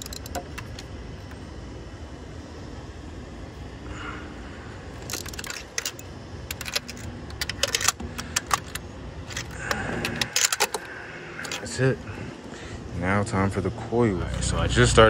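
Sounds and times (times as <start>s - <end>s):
socket ratchet clicking: 0.0s - 0.9s, 5.0s - 11.7s
small metal clinks: 0.0s - 1.4s, 5.0s - 11.7s.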